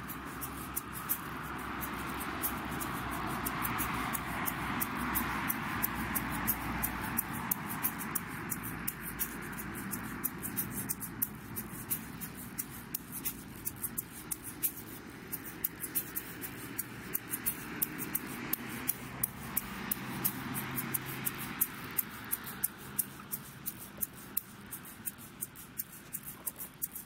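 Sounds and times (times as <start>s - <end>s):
handheld rattle shaken: 0.0s - 27.0s
steady hiss: 0.0s - 27.0s.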